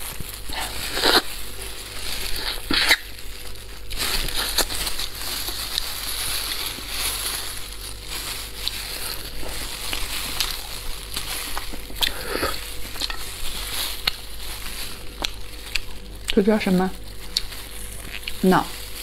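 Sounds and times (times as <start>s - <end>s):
plastic gloves crinkling: 0.0s - 19.0s
wet crackling and tearing: 0.0s - 19.0s.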